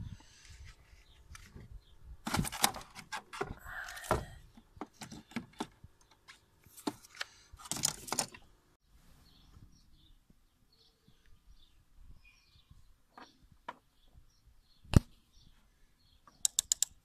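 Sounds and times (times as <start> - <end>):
metallic clicks of battery clamp: 16.3 - 17.0.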